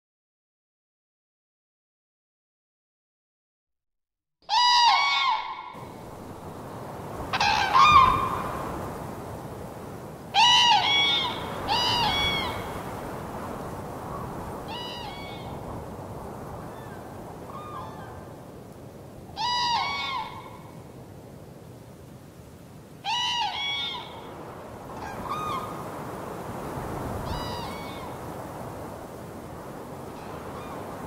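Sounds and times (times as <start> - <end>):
seagulls calling: 4.5 - 6.0, 7.2 - 8.9, 10.4 - 13.0, 14.0 - 15.8, 16.6 - 18.4, 19.4 - 20.8, 23.0 - 26.3, 27.2 - 28.7, 30.2 - 31.0
steady background hiss: 5.8 - 31.0.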